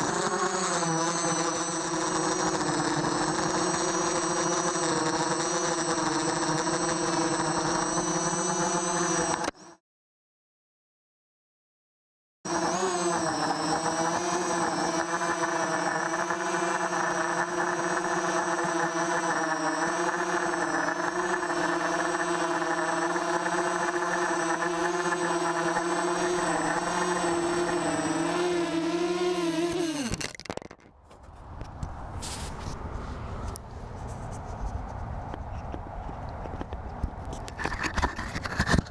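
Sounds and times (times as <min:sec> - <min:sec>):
quadcopter motors humming: 0:00.0 - 0:09.8, 0:12.5 - 0:30.8.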